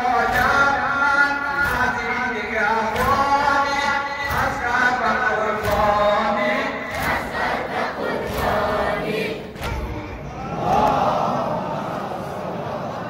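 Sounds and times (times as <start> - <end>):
person chanting a lament: 0.0 - 7.1.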